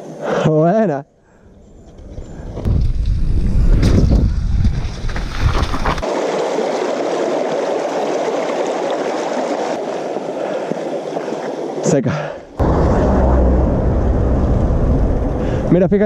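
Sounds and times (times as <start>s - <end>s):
wind on microphone: 1.4s - 6.0s
stream babbling over rocks: 5.8s - 12.6s.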